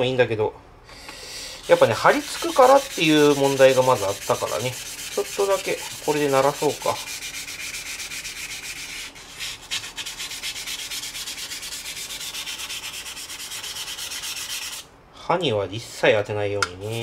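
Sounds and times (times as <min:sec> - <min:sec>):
sandpaper scratching on steel blade: 0:01.6 - 0:14.8.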